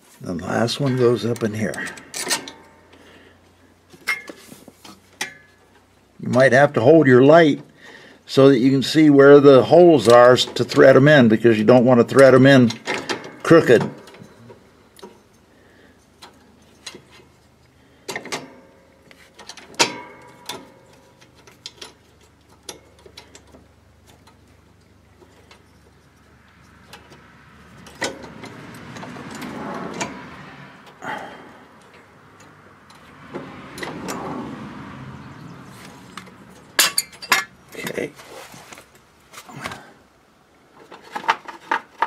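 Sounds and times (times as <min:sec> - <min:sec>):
scraping and rubbing: 0:37.8 - 0:39.7.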